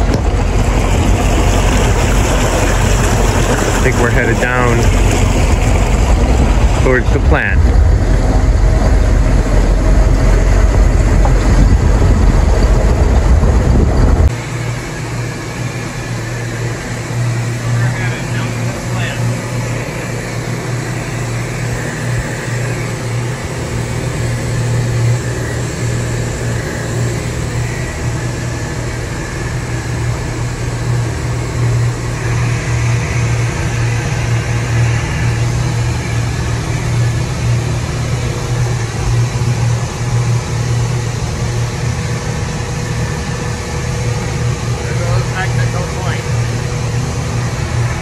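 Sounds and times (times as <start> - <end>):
wind and water rushing: 0.0 - 17.7
boat engine drone: 0.0 - 48.0.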